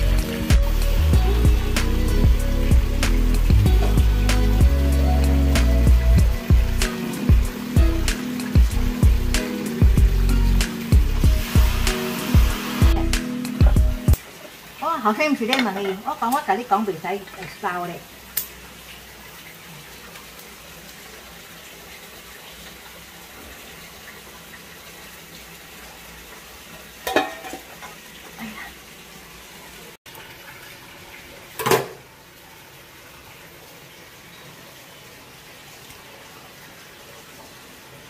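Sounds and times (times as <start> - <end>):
kitchenware clattering on metal: 27.0 - 27.8.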